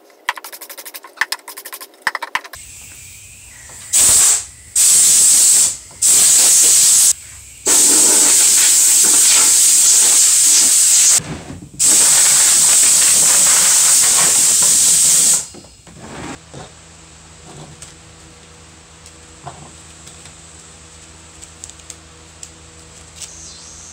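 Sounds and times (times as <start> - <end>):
compressed air blow gun hissing: 2.6 - 11.2, 11.8 - 16.4.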